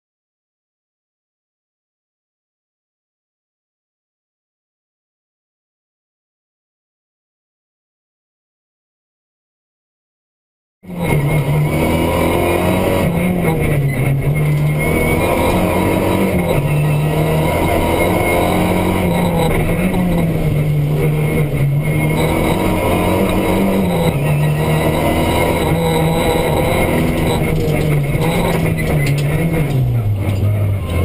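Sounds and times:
rally car engine revving: 10.8s - 31.0s.

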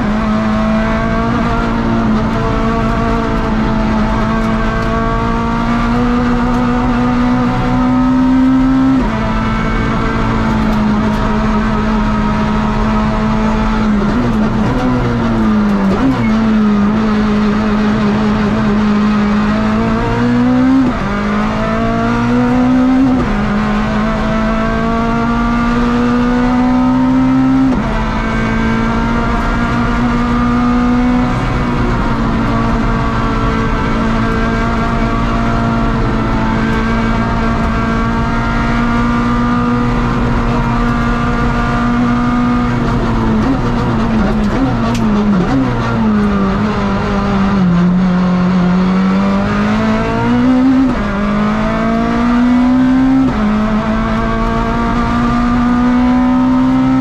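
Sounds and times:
rally car engine revving: 0.0s - 57.0s.

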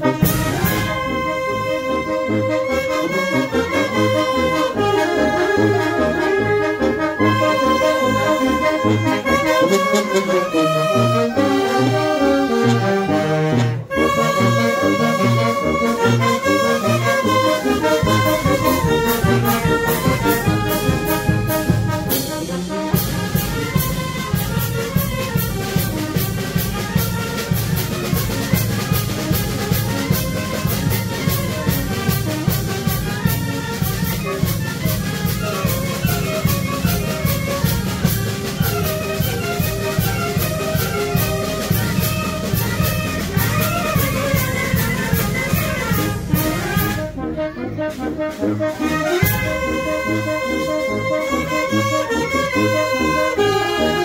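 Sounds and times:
brass band playing: 0.0s - 54.0s.

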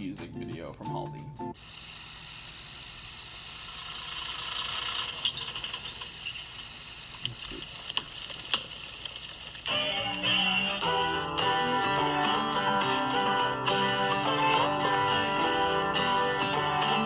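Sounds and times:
acoustic guitar music: 9.7s - 17.0s.

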